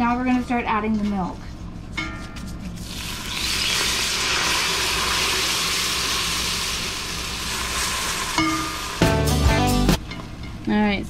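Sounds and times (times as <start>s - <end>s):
milk hissing in a hot pan: 2.8s - 9.1s.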